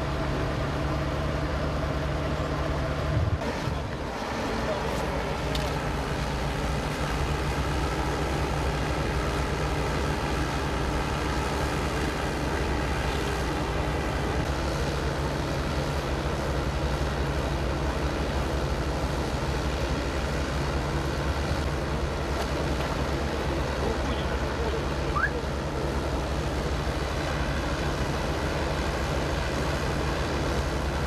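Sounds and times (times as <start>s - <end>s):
heavy vehicle engines idling: 0.0s - 31.0s.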